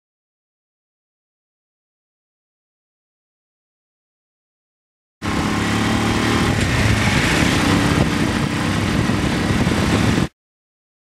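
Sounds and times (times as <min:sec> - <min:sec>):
motorcycle engine running: 0:05.2 - 0:10.3
rush of wind noise: 0:05.2 - 0:10.3.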